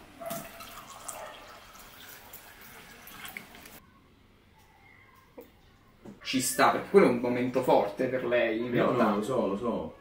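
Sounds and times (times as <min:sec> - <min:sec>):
water pouring into a glass: 0:00.3 - 0:03.8.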